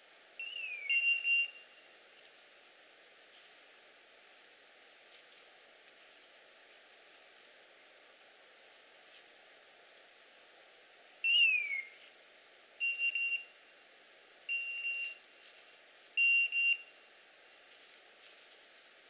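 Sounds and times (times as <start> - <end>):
electronic beeper collar beeps: 14.5 - 15.2.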